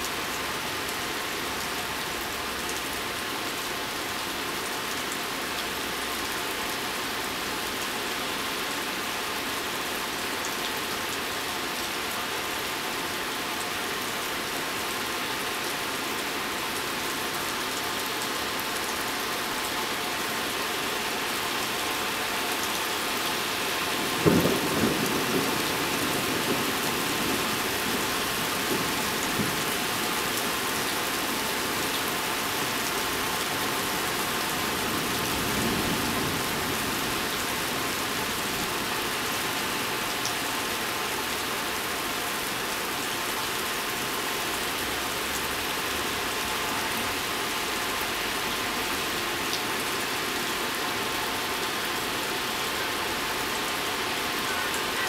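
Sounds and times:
rain spattering: 0.0 - 55.0
thunder crack and rumble: 24.1 - 29.6.

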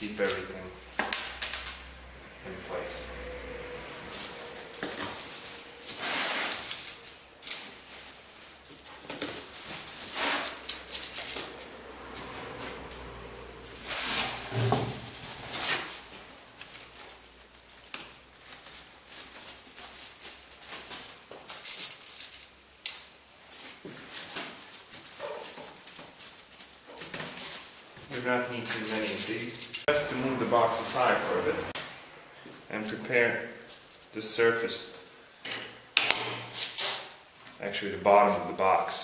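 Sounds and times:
aluminium foil crinkling: 4.1 - 11.5, 15.0 - 28.0, 28.6 - 29.9.

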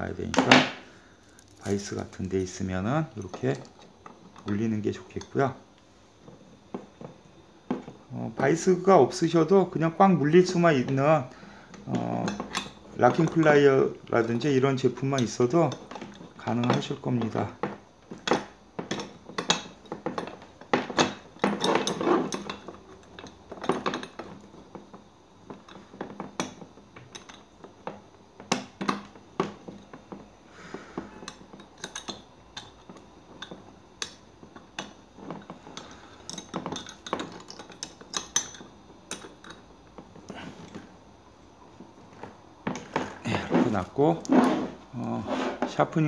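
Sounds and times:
metal tools clicking and knocking: 11.7 - 30.3, 31.0 - 40.9.

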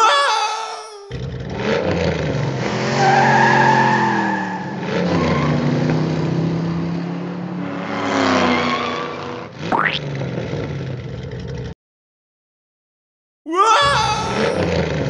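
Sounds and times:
toy car engine: 13.8 - 15.0.

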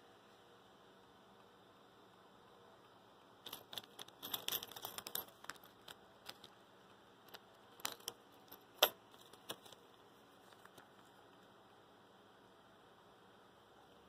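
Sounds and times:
small screws clicking in a bag: 3.4 - 6.5, 7.3 - 9.8.

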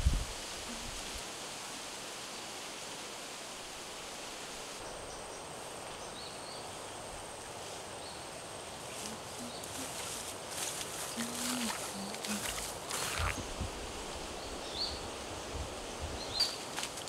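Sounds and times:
even hiss: 0.0 - 17.0
high insect whine: 3.4 - 17.0
footsteps through tall grass: 8.6 - 14.3, 15.7 - 17.0.

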